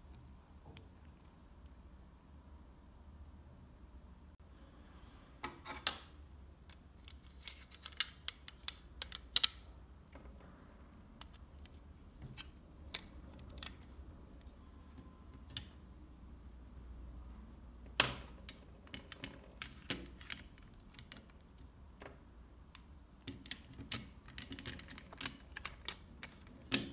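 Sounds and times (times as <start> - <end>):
plastic parts clicking and tapping: 6.6 - 10.4, 17.9 - 26.9.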